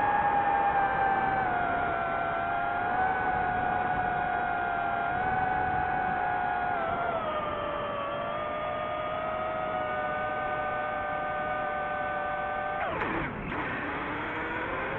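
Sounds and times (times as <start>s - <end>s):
drone motors whining: 0.0s - 14.9s.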